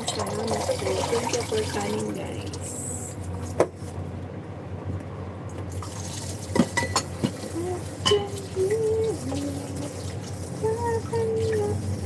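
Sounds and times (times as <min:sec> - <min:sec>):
running water in sink: 0:00.0 - 0:03.0, 0:05.7 - 0:12.0
dishes clinking: 0:06.6 - 0:07.4, 0:08.0 - 0:08.5
person humming: 0:07.5 - 0:10.0, 0:10.6 - 0:11.9.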